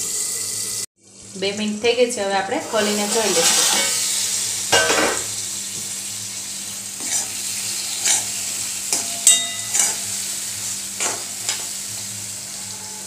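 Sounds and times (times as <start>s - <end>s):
tomato slices sizzling in oil: 0.0s - 13.0s
metal spoon scraping pan: 2.7s - 4.1s, 7.0s - 10.2s, 11.0s - 11.8s
spoon clinking on metal: 9.0s - 10.1s.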